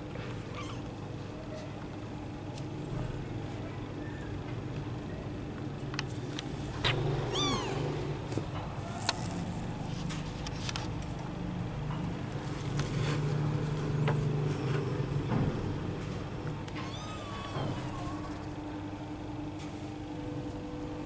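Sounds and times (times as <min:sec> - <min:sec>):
kitten mewing: 0:06.8 - 0:08.0, 0:16.8 - 0:18.0.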